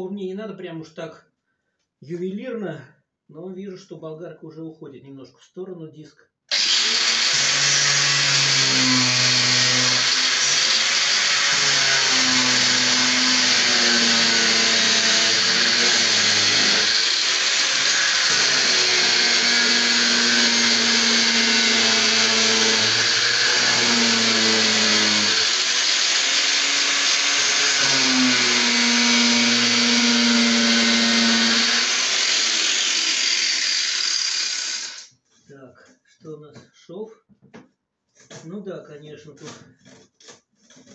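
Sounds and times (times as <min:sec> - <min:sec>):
angle grinder cutting plastic: 0:06.5 - 0:35.1.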